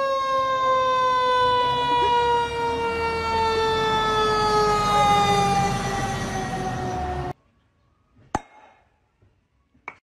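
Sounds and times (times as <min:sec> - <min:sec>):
fire engine siren: 0:00.0 - 0:07.4
truck engine rumble: 0:00.7 - 0:07.4.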